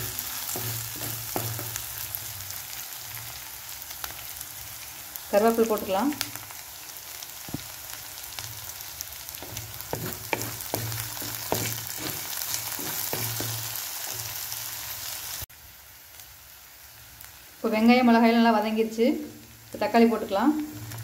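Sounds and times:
wooden spatula stirring: 0:00.0 - 0:01.9, 0:09.4 - 0:14.4
vegetables sizzling in hot oil: 0:00.0 - 0:21.0
sharp crackles and knocks: 0:07.5 - 0:07.8, 0:09.4 - 0:14.4.

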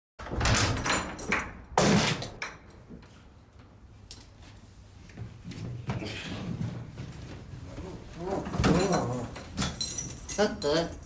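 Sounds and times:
wooden door banging open: 0:00.2 - 0:02.4.

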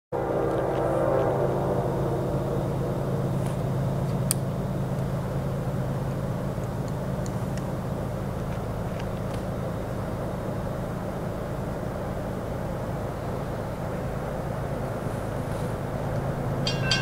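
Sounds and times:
low engine drone: 0:00.2 - 0:17.0
chord of higher tones: 0:16.7 - 0:17.0.

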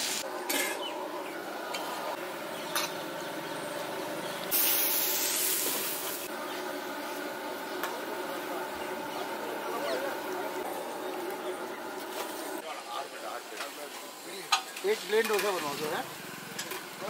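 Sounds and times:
loud hiss: 0:00.0 - 0:00.2, 0:04.5 - 0:06.3
hot oil sizzling: 0:00.0 - 0:17.0.

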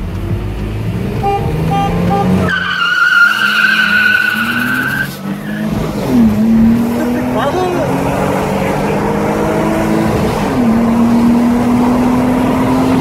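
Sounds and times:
car engine accelerating: 0:00.0 - 0:13.0
tyres squealing: 0:02.0 - 0:05.9.

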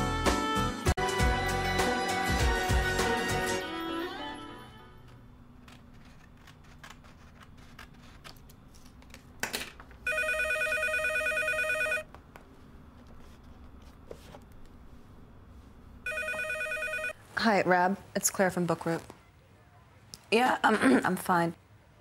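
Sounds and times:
paper rustling: 0:05.6 - 0:09.3
electronic telephone ring: 0:10.0 - 0:12.0, 0:16.1 - 0:17.2.

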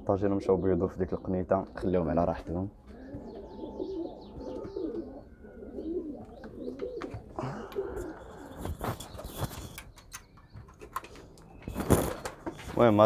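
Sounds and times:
pigeons cooing: 0:00.0 - 0:13.0
rustling: 0:08.0 - 0:10.0.

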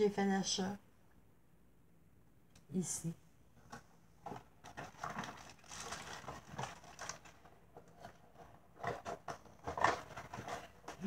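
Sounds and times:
packaging rustling and knocking: 0:03.7 - 0:11.0.

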